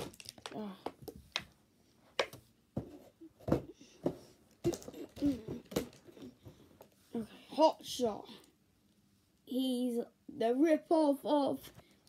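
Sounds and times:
plastic packaging clicks: 0.0 - 1.6.

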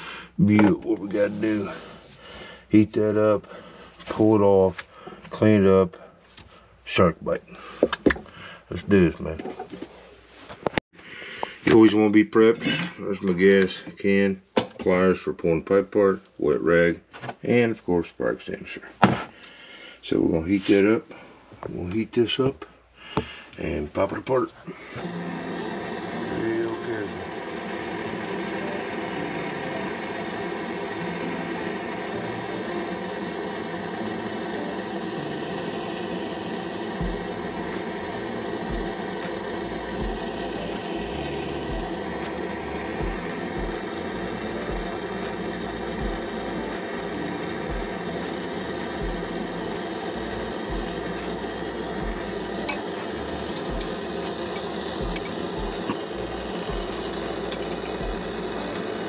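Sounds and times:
gas torch hissing: 0.0 - 6.1, 19.0 - 59.0.

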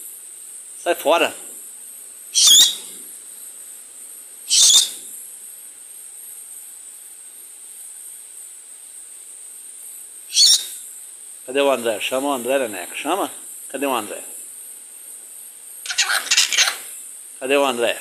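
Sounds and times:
parakeet screeching: 2.4 - 2.9, 4.5 - 5.0, 10.3 - 10.7, 15.8 - 16.9.

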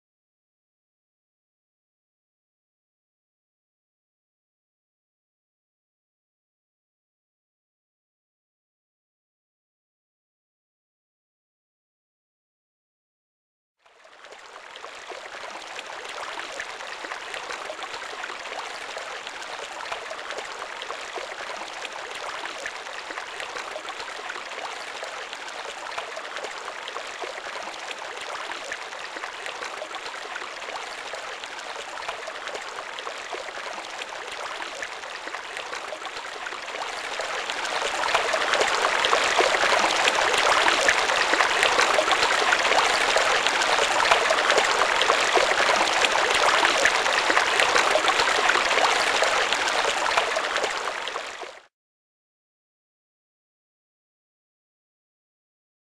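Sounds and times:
running water rushing: 15.2 - 51.2.

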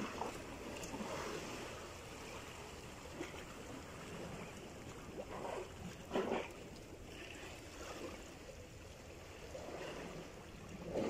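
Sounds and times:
water lapping against boat: 0.0 - 11.0.

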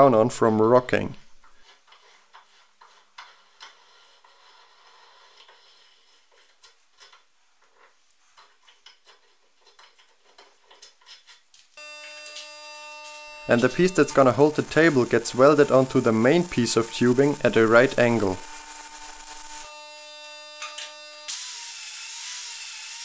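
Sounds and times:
steady buzzing hum: 11.8 - 21.4.

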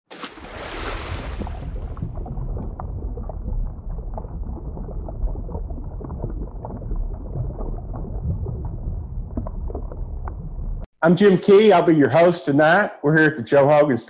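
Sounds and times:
bubbles popping: 0.3 - 10.9
underwater low rumble: 1.0 - 10.9.

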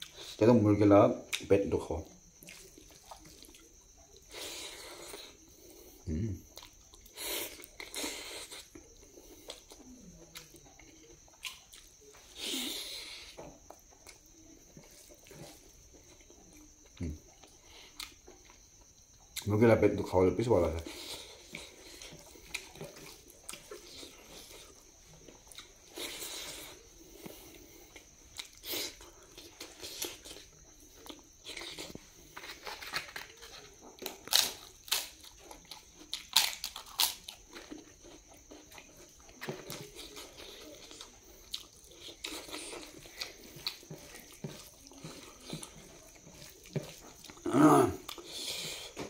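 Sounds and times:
person chewing: 2.3 - 19.4, 20.8 - 49.0
crisp food cracking: 31.5 - 37.8.

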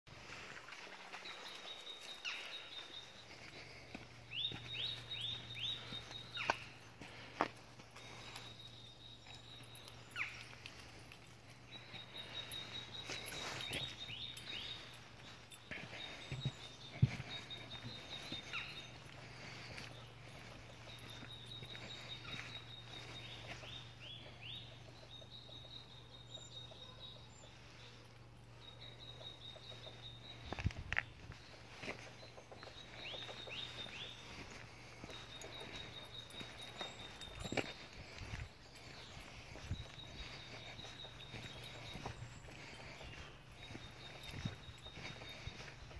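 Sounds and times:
songbirds singing: 0.1 - 45.9
footsteps on gravel: 10.4 - 24.2, 30.3 - 45.9.

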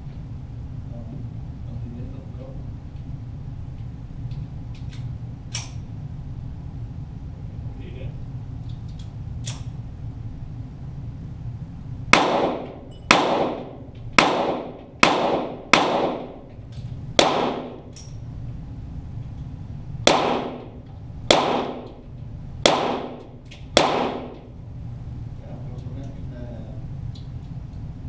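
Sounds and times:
pistol shots with echo: 12.1 - 16.4, 17.2 - 17.9, 20.0 - 22.0, 22.6 - 24.5.

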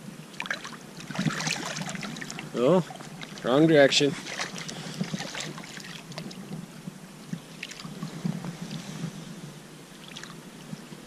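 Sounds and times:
river water sloshing and lapping: 0.0 - 11.0
light water splashes: 0.3 - 6.6, 7.2 - 9.2, 9.9 - 10.8.

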